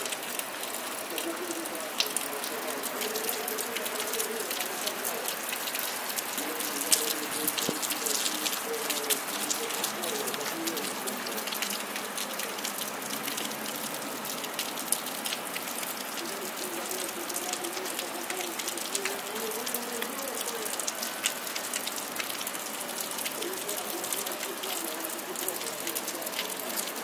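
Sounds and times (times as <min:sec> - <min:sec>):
heavy rain falling: 0:00.0 - 0:27.0
raindrops ticking near microphone: 0:00.0 - 0:27.0.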